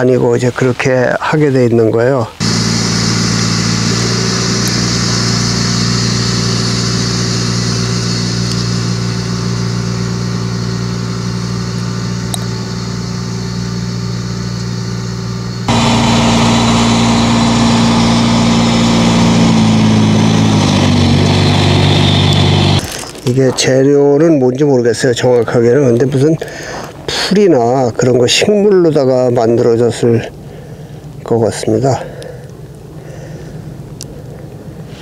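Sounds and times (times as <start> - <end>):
tractor diesel engine running: 2.4 - 23.2.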